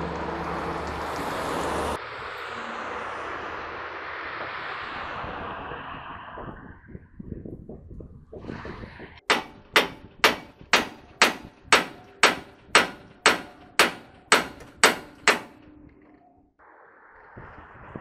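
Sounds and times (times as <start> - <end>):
hammer striking steel: 9.2 - 15.9.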